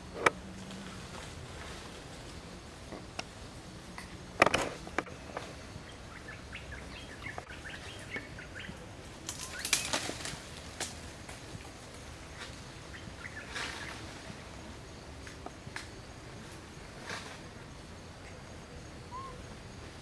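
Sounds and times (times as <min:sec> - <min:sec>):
rustling: 0:09.2 - 0:12.8.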